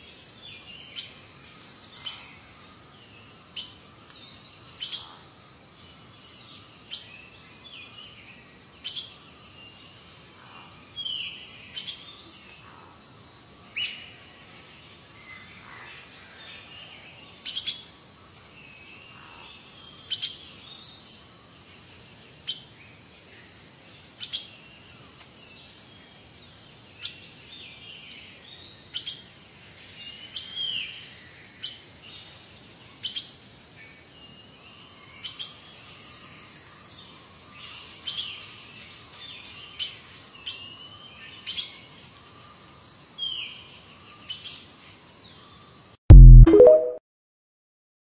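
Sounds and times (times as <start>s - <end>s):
loud low thump: 46.1s - 46.5s.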